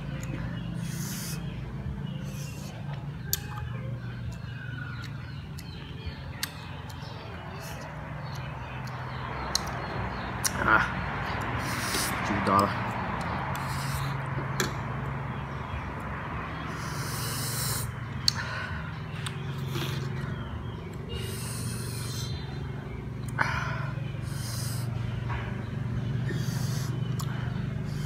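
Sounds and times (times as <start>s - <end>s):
steady low hum: 0.0s - 28.0s
slurping and sharp breaths: 0.6s - 2.8s, 11.5s - 12.3s, 13.5s - 14.4s, 16.7s - 20.2s, 21.1s - 22.4s, 23.4s - 25.0s, 26.2s - 28.0s.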